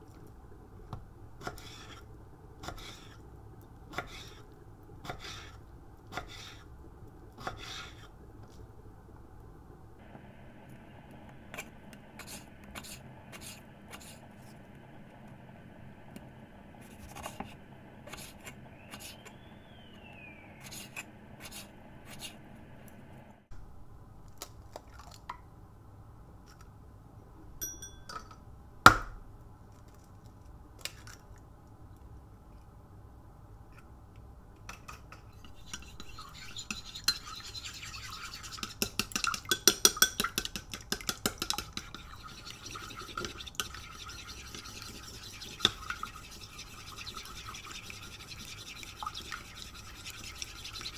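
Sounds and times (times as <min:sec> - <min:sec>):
chopsticks beating egg in bowl: 0:34.7 - 0:50.9.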